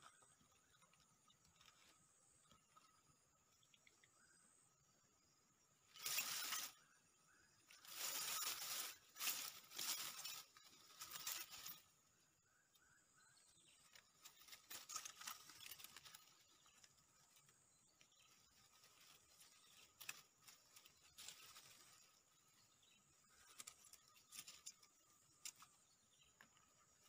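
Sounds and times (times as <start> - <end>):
faint insect drone: 0.0 - 27.0
dry grass rustling and crackling: 5.9 - 6.9, 7.5 - 12.1, 13.6 - 27.0.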